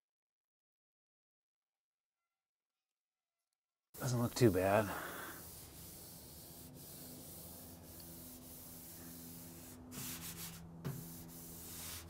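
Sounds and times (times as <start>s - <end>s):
hand rubbing on painted metal: 4.0s - 12.0s.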